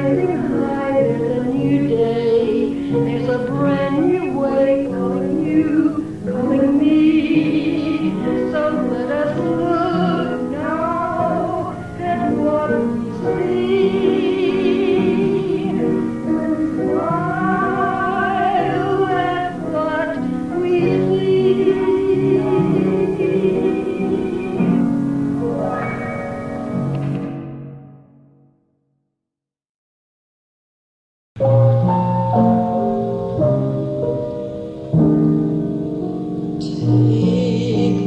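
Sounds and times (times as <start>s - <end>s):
woman singing with vibrato: 0.0s - 25.0s, 36.6s - 38.0s
sustained organ chords: 36.6s - 38.0s.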